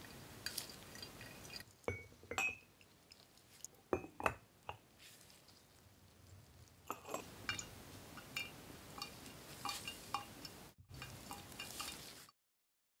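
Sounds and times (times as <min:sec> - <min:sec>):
ceramic mug clinking on table: 0:01.9 - 0:02.7, 0:03.9 - 0:04.8.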